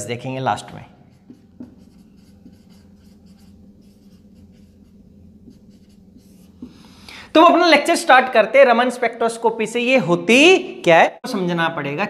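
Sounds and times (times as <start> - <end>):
low steady hum: 0.0 - 8.6
marker scratching on whiteboard: 1.0 - 6.8.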